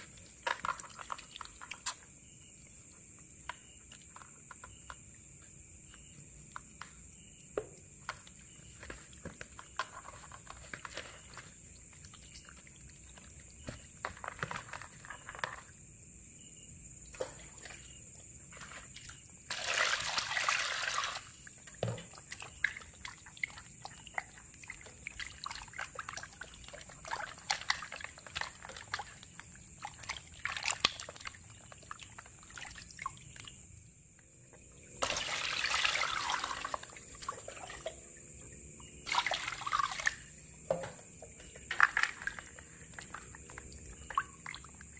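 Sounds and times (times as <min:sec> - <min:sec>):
hands squelching fish in water: 0:08.2 - 0:15.6, 0:17.1 - 0:33.7, 0:35.0 - 0:38.0, 0:39.0 - 0:40.4, 0:41.7 - 0:44.9
water pouring: 0:18.5 - 0:33.6, 0:34.8 - 0:40.8, 0:41.7 - 0:44.9.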